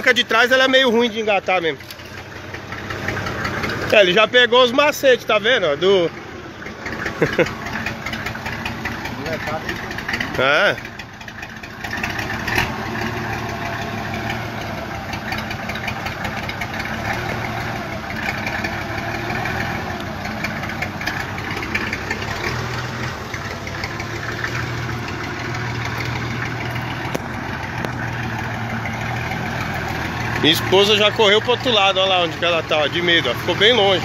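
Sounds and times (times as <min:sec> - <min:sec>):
truck diesel engine running: 0:00.0 - 0:34.0.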